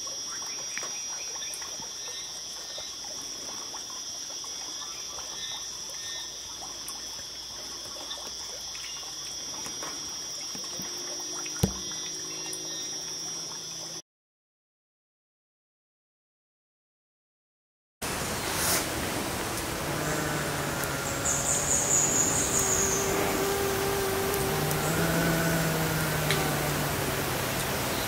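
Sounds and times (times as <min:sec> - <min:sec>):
insect drone: 0:00.0 - 0:14.0, 0:18.1 - 0:28.0
sharp knock: 0:11.6 - 0:11.9.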